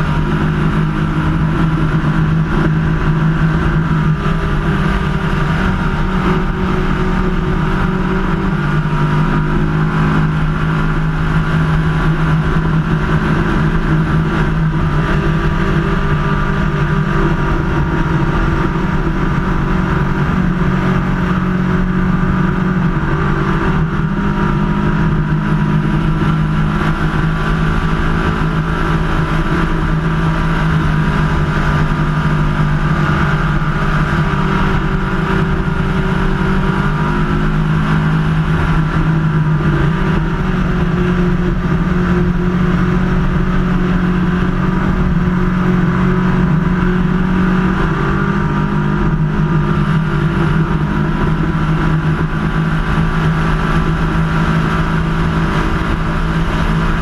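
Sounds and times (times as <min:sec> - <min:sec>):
boat engine droning: 0:00.0 - 0:57.0.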